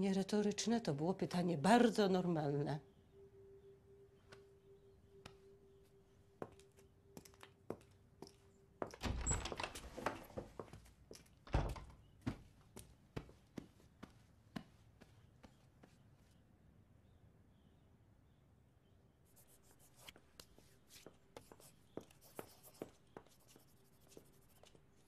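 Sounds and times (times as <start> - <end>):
faint steady tone: 1.9 - 8.8.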